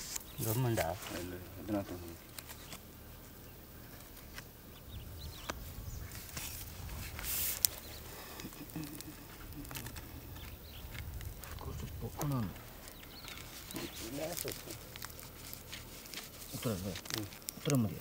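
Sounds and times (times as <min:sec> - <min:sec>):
faint bird chirps: 0:07.5 - 0:14.9.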